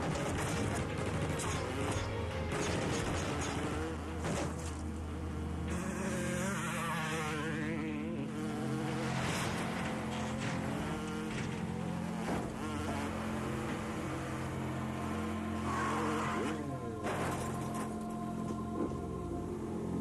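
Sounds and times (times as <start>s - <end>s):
motorcycle engine buzzing: 3.1s - 9.2s, 10.8s - 18.1s.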